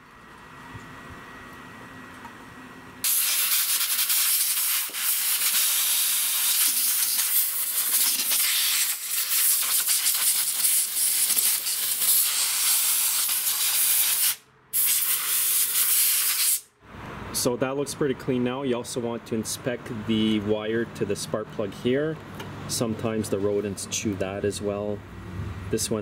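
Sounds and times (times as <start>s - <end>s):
compressed air blow gun hissing: 3.0s - 16.7s.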